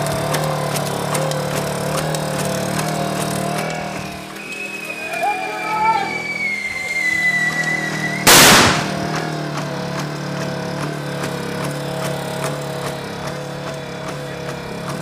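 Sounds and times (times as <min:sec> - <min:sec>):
loud bang: 0:08.3 - 0:09.3.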